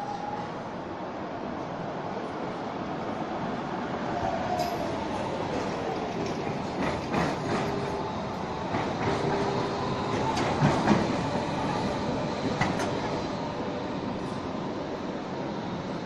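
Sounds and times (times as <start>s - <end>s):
tram wheels clicking over rails: 5.5s - 13.8s.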